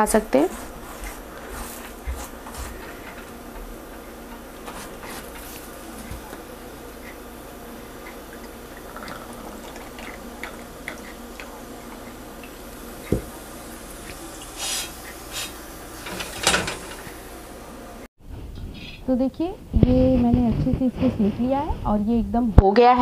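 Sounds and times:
ghee sizzling and crackling: 0.0 - 17.6.

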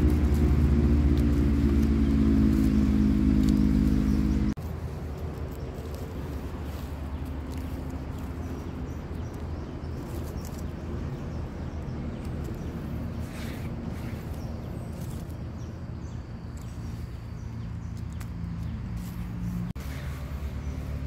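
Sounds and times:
low droning hum: 0.0 - 10.1
rustling in dry leaf litter: 0.0 - 21.0.

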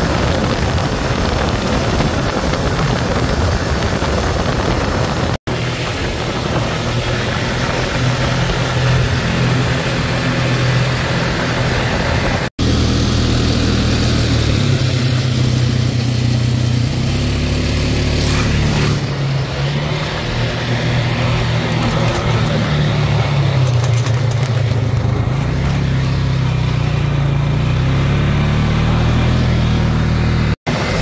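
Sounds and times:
wind noise: 0.0 - 12.6
tyres on gravel: 0.0 - 27.9
vehicle engine running: 0.0 - 31.0.

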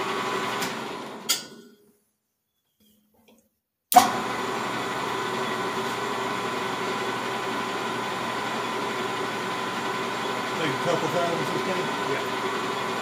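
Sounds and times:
metal lathe running: 4.1 - 13.0.

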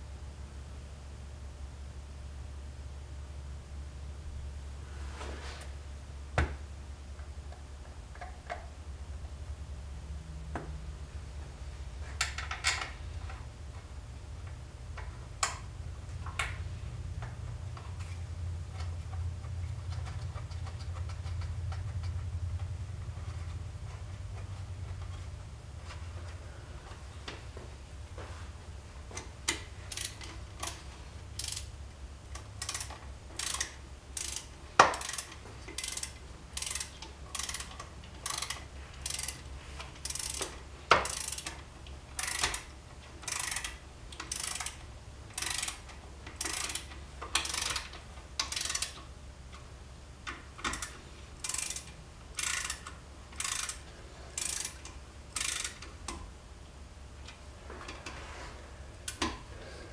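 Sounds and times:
ratchet wrench clicking: 18.8 - 23.6, 29.2 - 31.7, 32.3 - 49.1, 50.3 - 56.2.

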